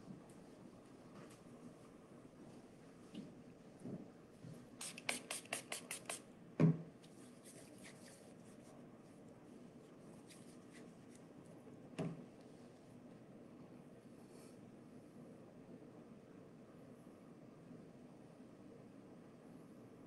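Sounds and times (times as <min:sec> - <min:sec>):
dull knock: 0:06.6 - 0:06.9.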